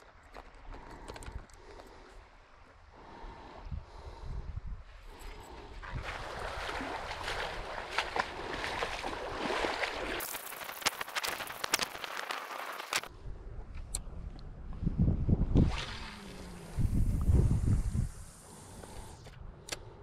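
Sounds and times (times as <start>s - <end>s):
sea water sloshing and splashing: 5.9s - 13.1s.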